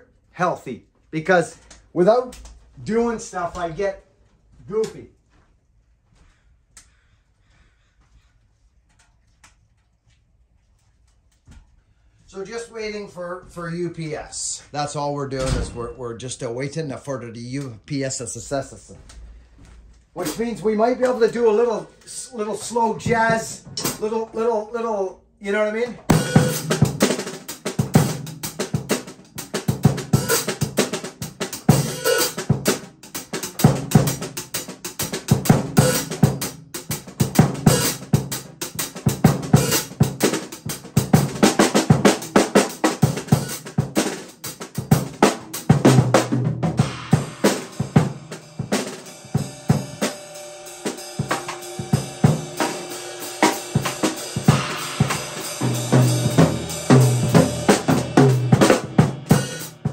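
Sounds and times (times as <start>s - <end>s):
bass drum: 26.1s - 34.4s, 40.8s - 50.0s, 51.2s - 59.9s
cymbals: 26.1s - 36.6s, 37.3s - 38.4s, 39.3s - 46.1s, 46.8s - 59.9s.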